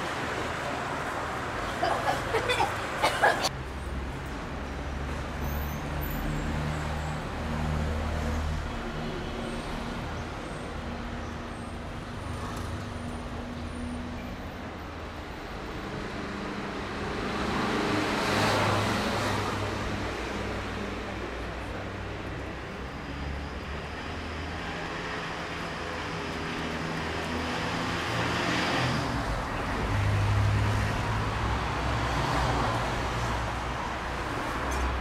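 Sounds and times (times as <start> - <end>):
passing vehicle road noise: 15.7 - 35.0.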